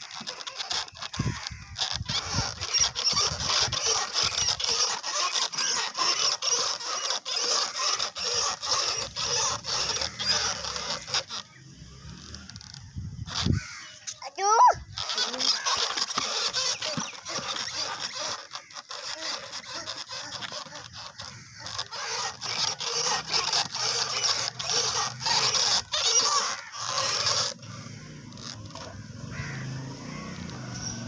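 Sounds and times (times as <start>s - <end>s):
plastic wheels scraping on dirt: 0.0s - 31.0s.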